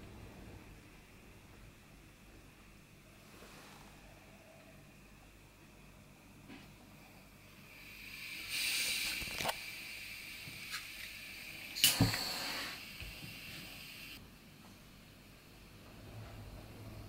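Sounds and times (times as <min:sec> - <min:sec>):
gas burner hissing: 0:07.0 - 0:17.0.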